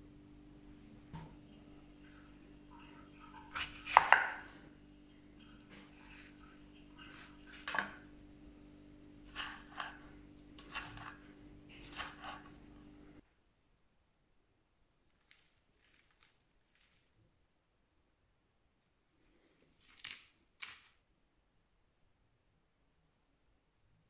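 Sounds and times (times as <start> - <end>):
knife slicing on wooden board: 3.5 - 4.4, 9.2 - 12.5.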